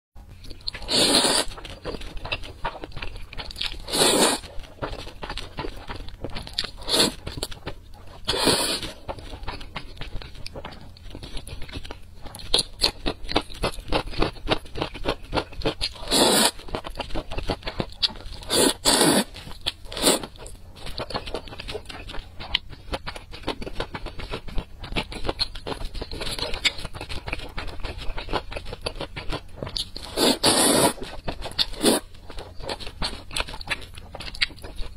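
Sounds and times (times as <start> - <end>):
wet chewing: 0.4 - 34.9
loud noodle slurps: 0.9 - 1.5, 3.9 - 4.4, 8.3 - 8.9, 16.0 - 16.6, 18.5 - 19.3, 30.1 - 31.0.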